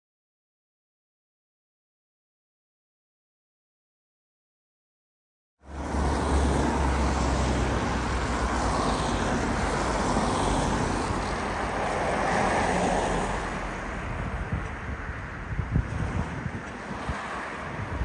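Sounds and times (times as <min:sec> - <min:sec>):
cars passing: 0:05.6 - 0:18.0
wind buffeting microphone: 0:13.6 - 0:18.0.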